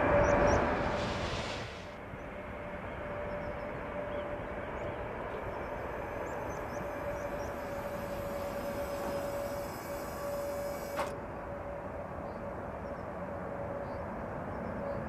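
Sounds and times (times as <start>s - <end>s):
engine running: 3.8s - 11.6s.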